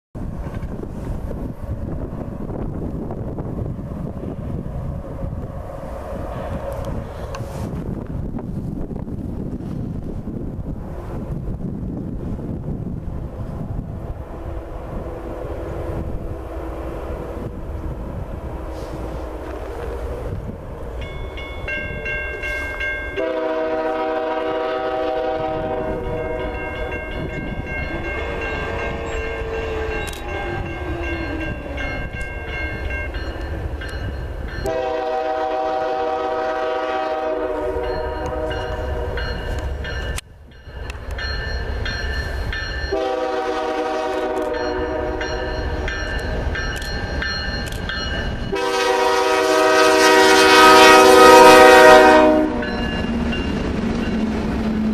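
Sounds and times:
low wind rumble: 0.2s - 54.9s
locomotive air horn blasts: 18.5s - 19.8s, 22.4s - 26.6s, 34.6s - 39.3s, 42.9s - 45.5s, 48.5s - 52.8s.

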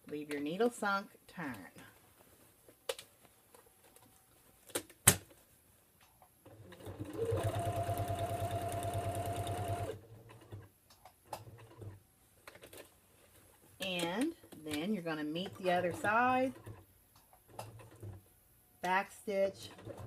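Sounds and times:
sewing machine stitching: 6.4s - 10.7s, 11.3s - 12.0s, 15.3s - 16.9s, 17.5s - 18.3s, 19.5s - 20.0s.

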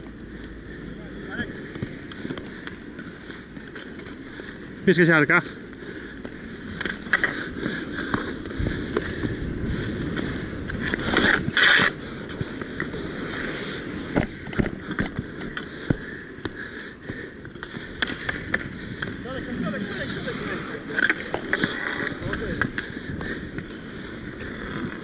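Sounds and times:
skates rolling and scraping on court: 0.0s - 25.0s
hockey sticks clacking: 19.8s - 22.9s.

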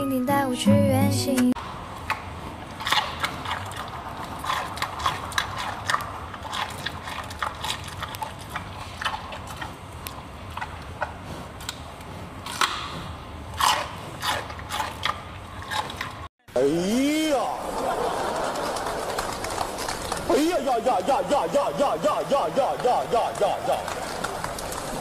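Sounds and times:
panda crunching carrot: 1.9s - 16.3s.

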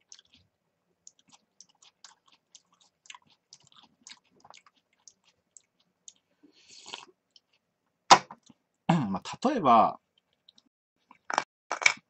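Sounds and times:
person chewing food: 0.0s - 7.7s.

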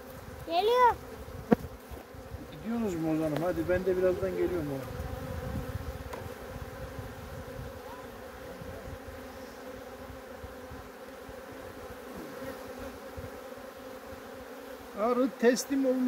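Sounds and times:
honeybees humming: 0.0s - 16.0s.

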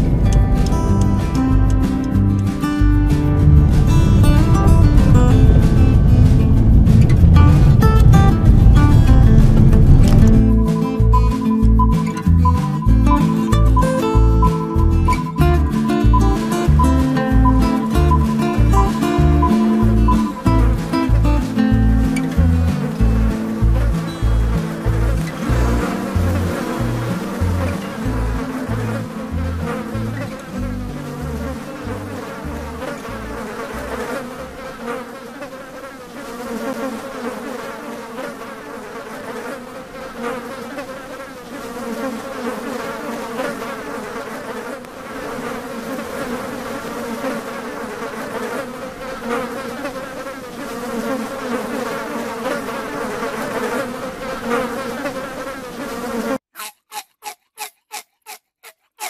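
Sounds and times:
low thumps: 0.0s - 32.0s
flying insects buzzing: 0.0s - 56.5s.

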